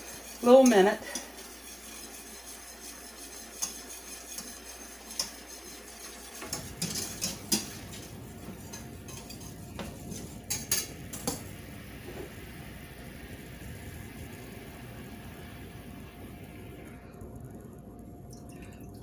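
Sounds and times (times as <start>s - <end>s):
whisk stirring in a metal saucepan: 0.0s - 11.4s
whisk clinking on pan: 0.0s - 11.5s.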